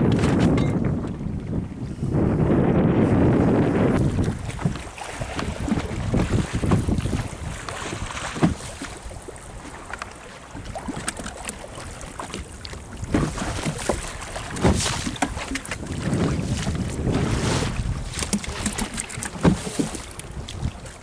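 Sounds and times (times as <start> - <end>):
knocks and clicks of fishing line: 0.0 - 1.2, 7.7 - 9.0, 10.9 - 11.6, 13.1 - 14.0, 14.6 - 15.8, 18.1 - 20.7
water lapping against boat hull: 0.0 - 21.0
wind buffeting microphone: 0.0 - 21.0.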